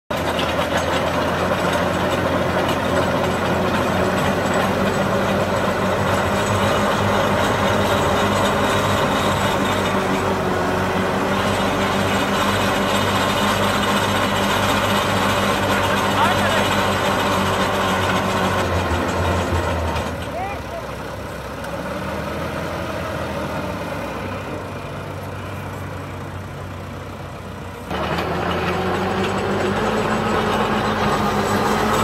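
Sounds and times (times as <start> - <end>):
augers boring into soil: 0.1 - 25.9, 27.8 - 32.0
tractor diesel engine running: 0.1 - 32.0.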